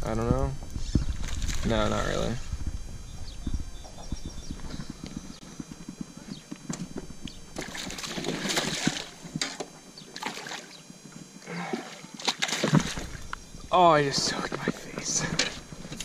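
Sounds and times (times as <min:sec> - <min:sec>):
fish splashing at water surface: 0:07.6 - 0:09.2, 0:10.2 - 0:10.8, 0:11.7 - 0:13.2.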